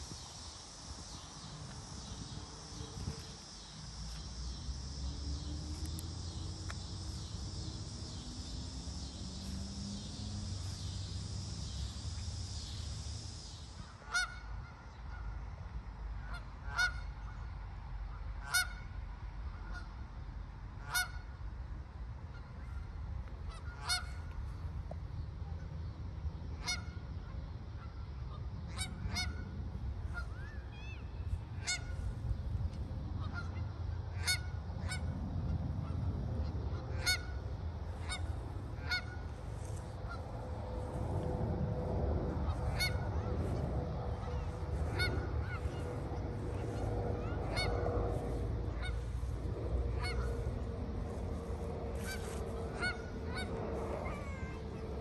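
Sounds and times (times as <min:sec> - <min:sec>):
high insect buzz: 0:00.0 - 0:14.0
geese honking: 0:13.2 - 0:15.3, 0:16.2 - 0:17.3, 0:18.4 - 0:18.8, 0:20.8 - 0:21.2, 0:23.5 - 0:24.2, 0:26.6 - 0:27.0, 0:31.6 - 0:32.0, 0:33.2 - 0:35.1, 0:35.8 - 0:41.0, 0:42.3 - 0:55.0
low rumble: 0:34.8 - 0:55.0.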